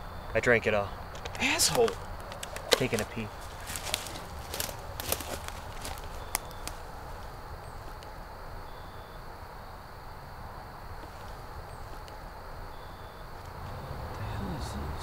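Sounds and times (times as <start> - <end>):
faint clicks: 1.1 - 6.8.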